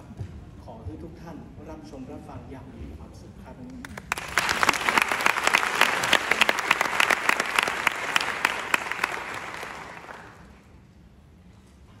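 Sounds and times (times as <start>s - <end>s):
audience applauding: 3.9s - 10.6s.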